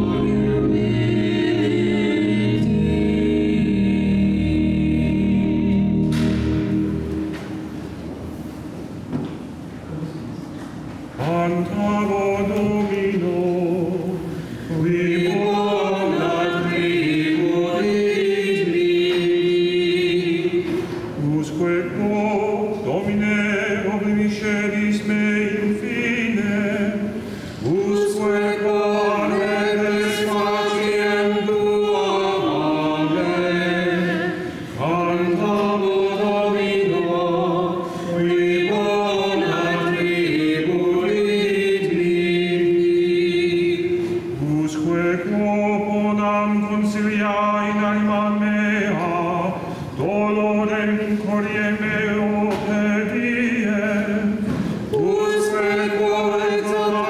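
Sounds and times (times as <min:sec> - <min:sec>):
choir chanting: 0:00.0 - 0:07.9, 0:14.7 - 0:47.7.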